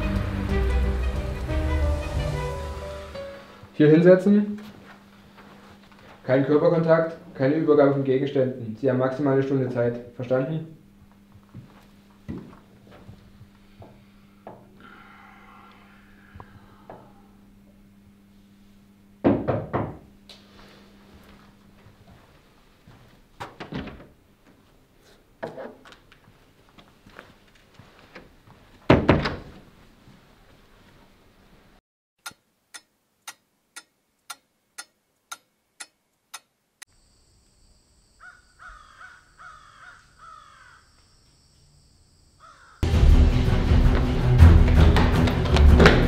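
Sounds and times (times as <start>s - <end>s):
loud music: 0.0s - 3.5s, 42.8s - 46.0s
steady high whine: 9.1s - 19.2s
wall clock ticking: 32.2s - 36.5s
falling bird calls: 38.2s - 41.0s, 42.4s - 42.8s.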